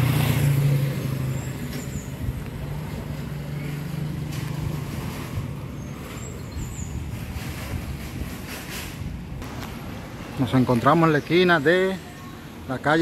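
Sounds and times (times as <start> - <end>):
vehicle engine humming: 0.0 - 8.3
traffic noise: 0.0 - 13.0.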